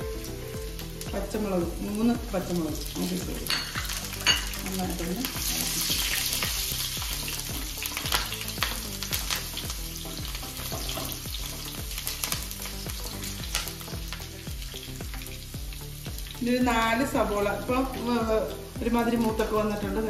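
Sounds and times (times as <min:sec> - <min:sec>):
food sizzling in hot oil: 0:00.0 - 0:20.0
spatula scraping and tapping pan: 0:08.0 - 0:14.3.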